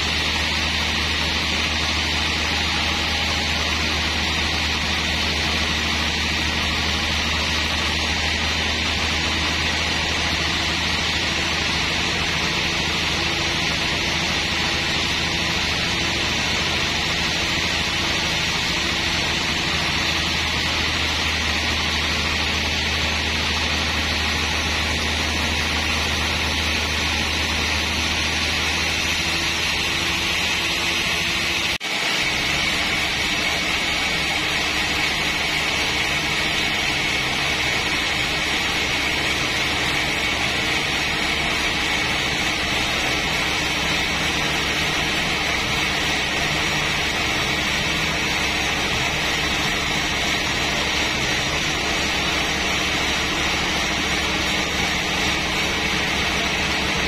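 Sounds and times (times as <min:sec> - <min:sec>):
band saw running: 0:00.0 - 0:57.0.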